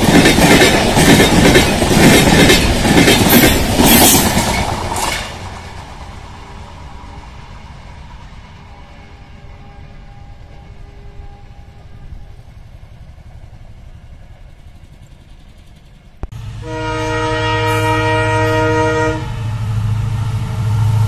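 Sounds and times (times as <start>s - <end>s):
locomotive horn: 8.7s - 12.3s, 16.4s - 19.7s.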